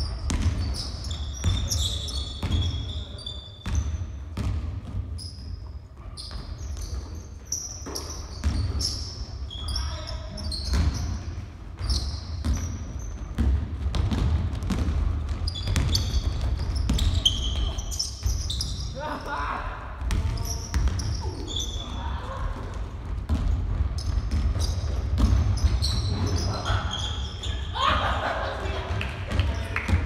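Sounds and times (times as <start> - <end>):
sneakers squeaking: 0.0 - 30.0
basketball bouncing on hardwood: 4.4 - 5.0, 13.3 - 17.7, 22.7 - 25.9.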